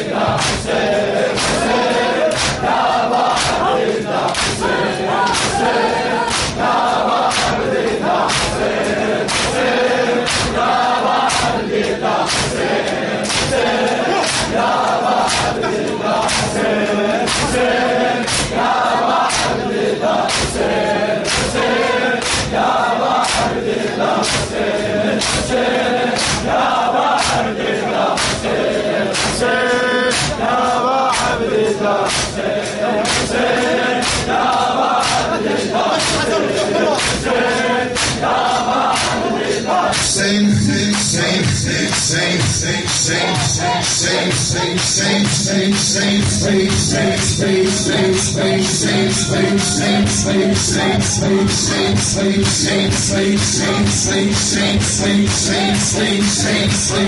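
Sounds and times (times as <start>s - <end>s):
crowd singing in chorus: 0.0s - 57.0s
chest beating slaps: 0.3s - 0.8s, 1.4s - 4.7s, 5.3s - 5.7s, 6.3s - 7.6s, 8.2s - 11.6s, 12.2s - 12.6s, 13.2s - 19.6s, 20.3s - 23.6s, 24.2s - 25.6s, 26.2s - 26.6s, 28.2s - 28.5s, 29.1s - 29.5s, 30.1s - 30.5s, 32.0s - 32.4s, 34.0s - 36.4s, 38.0s - 39.2s
man chanting a lament: 12.5s - 22.6s, 24.9s - 57.0s.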